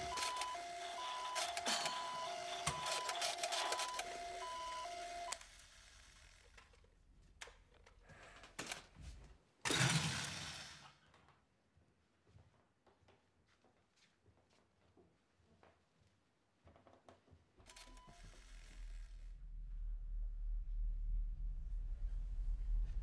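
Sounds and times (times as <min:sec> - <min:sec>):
toy electronic two-tone siren: 0:00.0 - 0:05.4.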